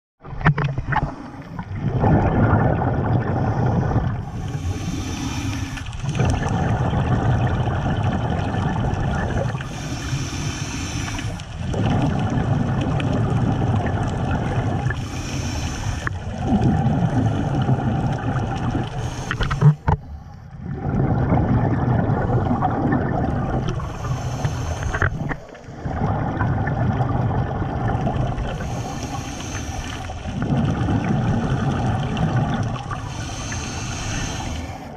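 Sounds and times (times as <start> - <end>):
bubbling exhalations through regulator: 0.2 - 34.9
hissing inhalations: 3.4 - 6.1, 9.6 - 11.6, 14.9 - 16.2, 18.9 - 19.9, 23.7 - 25.7, 28.4 - 30.3, 32.9 - 34.9.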